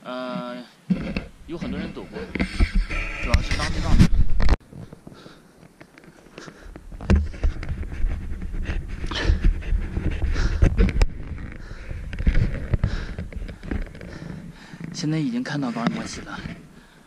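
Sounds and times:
man panting heavily: 0:08.6 - 0:10.9, 0:11.5 - 0:14.8.

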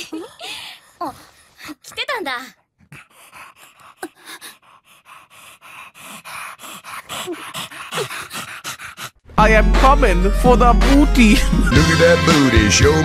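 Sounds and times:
dog panting: 0:00.2 - 0:09.2.

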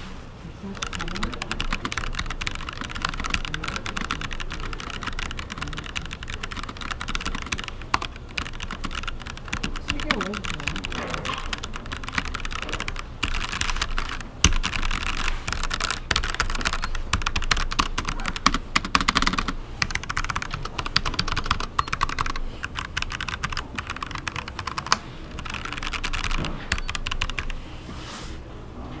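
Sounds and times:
mechanical keyboard typing: 0:00.7 - 0:27.6.

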